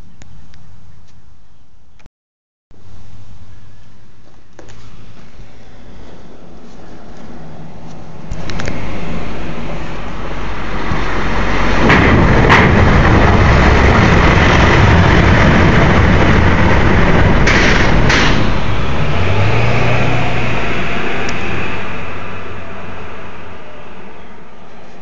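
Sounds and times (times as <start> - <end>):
tyre and engine noise: 2.8 - 25.0
sharp double clunk: 17.4 - 18.7.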